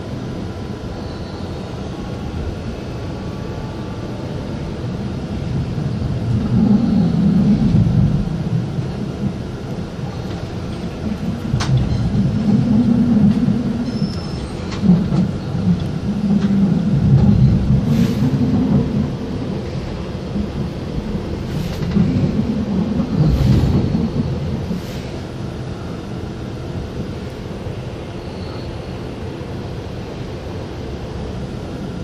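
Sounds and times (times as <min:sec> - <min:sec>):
train rumbling on rails: 0:00.0 - 0:32.0.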